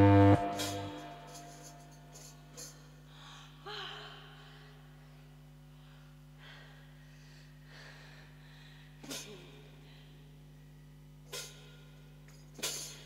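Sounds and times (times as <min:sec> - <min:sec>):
amplifier hum: 0:00.0 - 0:01.9.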